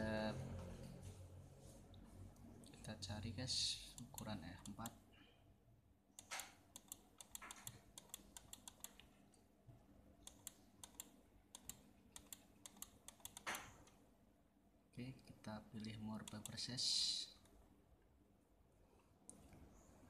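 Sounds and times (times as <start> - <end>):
computer mouse clicks: 3.9 - 5.0, 6.2 - 9.4, 10.2 - 14.0, 16.2 - 16.7.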